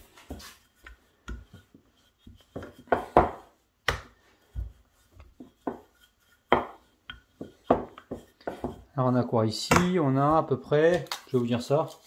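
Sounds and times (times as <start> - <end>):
rolling pin rolling dough: 0.0 - 10.5.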